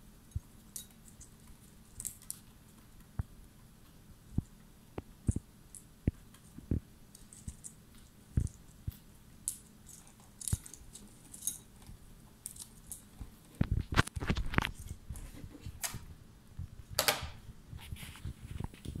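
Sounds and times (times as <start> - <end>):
small crunching clicks: 4.4 - 15.0.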